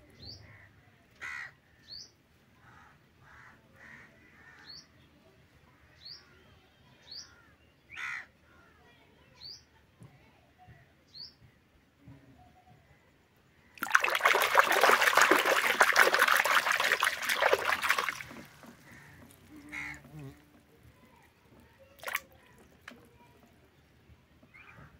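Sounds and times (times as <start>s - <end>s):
water splashing and sloshing: 13.8s - 23.4s.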